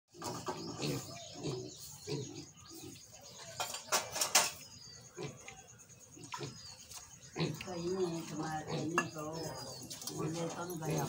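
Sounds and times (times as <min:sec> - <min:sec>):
piglets grunting: 0:00.2 - 0:03.1, 0:05.1 - 0:05.6, 0:07.3 - 0:08.0.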